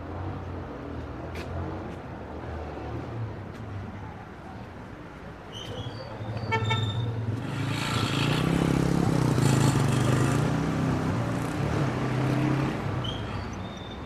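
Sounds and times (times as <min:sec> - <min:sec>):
vehicle engine passing: 0:07.0 - 0:13.1.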